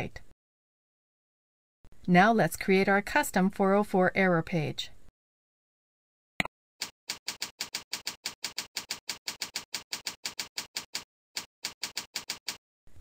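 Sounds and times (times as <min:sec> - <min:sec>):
computer keyboard typing: 0:06.8 - 0:12.6.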